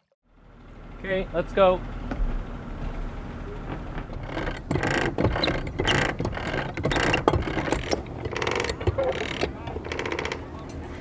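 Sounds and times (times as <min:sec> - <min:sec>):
anchor chain clanking: 0:03.6 - 0:10.9.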